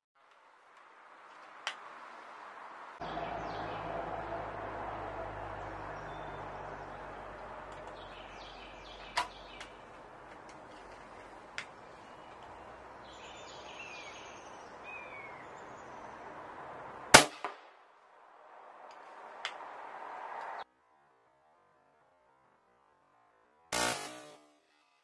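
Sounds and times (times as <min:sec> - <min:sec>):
steady outdoor hiss: 0:00.0 - 0:25.0
small birds chirping: 0:03.0 - 0:17.1
air rifle shot: 0:17.1 - 0:17.6.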